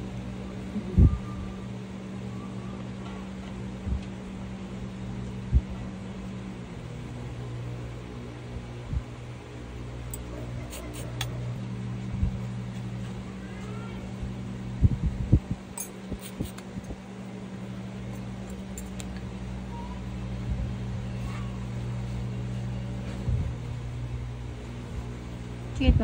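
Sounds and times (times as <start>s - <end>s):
low mechanical hum: 0.0s - 26.0s.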